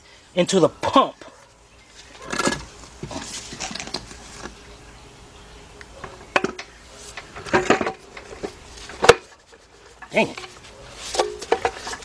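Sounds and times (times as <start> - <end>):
metal clunks and scrapes: 2.0 - 4.6, 6.0 - 12.0.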